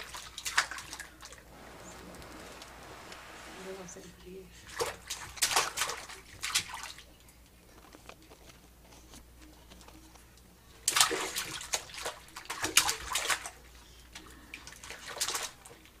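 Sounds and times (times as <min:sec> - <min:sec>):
baby splashing water: 0:04.6 - 0:07.1, 0:10.8 - 0:16.0.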